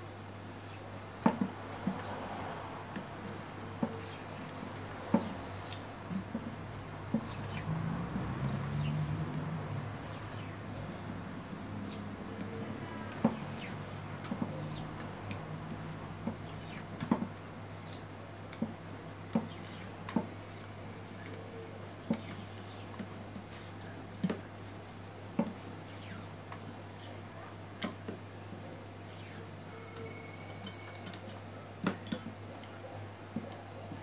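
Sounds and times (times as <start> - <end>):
steady low hum: 0.0 - 30.0
clicks and knocks of tape and metal: 2.9 - 29.6.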